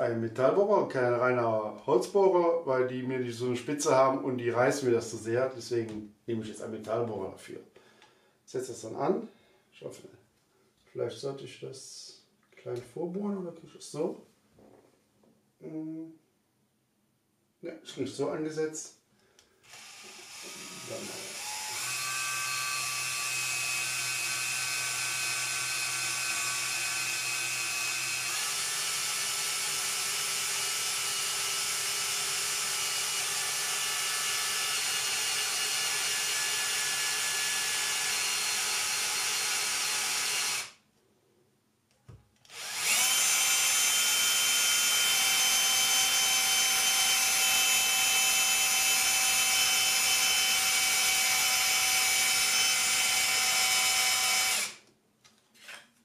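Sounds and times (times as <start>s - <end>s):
drill boring into wood: 19.6s - 40.8s, 42.5s - 54.8s.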